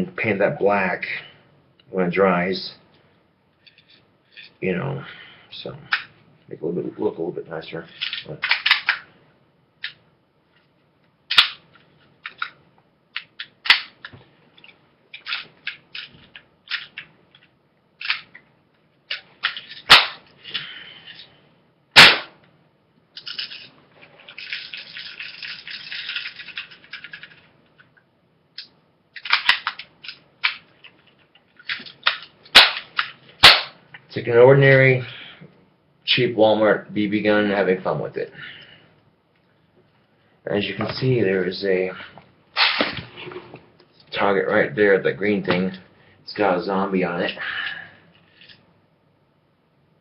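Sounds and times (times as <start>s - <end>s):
sharp gun cracks: 11.3s - 11.6s, 13.6s - 14.0s, 19.8s - 20.2s, 22.0s - 22.4s, 32.0s - 33.8s, 42.6s - 43.0s.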